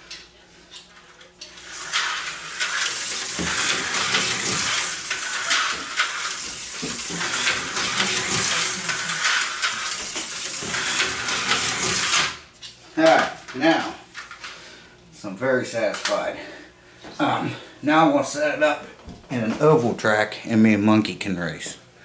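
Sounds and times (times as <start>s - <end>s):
slot car rattling hiss: 1.6s - 12.4s.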